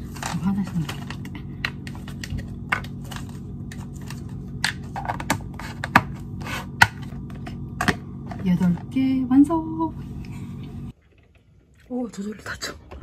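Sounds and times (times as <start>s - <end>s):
plastic rustling: 0.0s - 6.5s.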